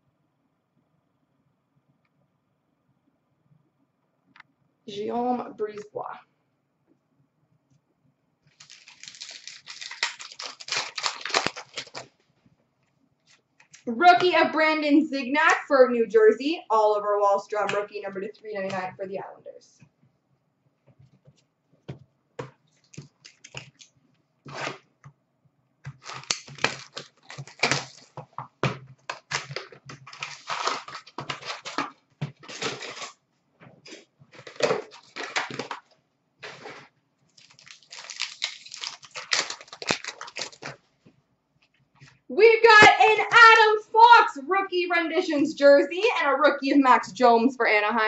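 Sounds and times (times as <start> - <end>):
card pack wrappers tearing: 8.5 - 12.1, 22.8 - 23.9, 25.9 - 28.2, 29.0 - 33.2, 33.9 - 35.8, 36.4 - 40.8
cards shuffling: 8.5 - 12.1, 22.4 - 23.9, 25.9 - 28.2, 29.0 - 33.1, 37.4 - 40.8.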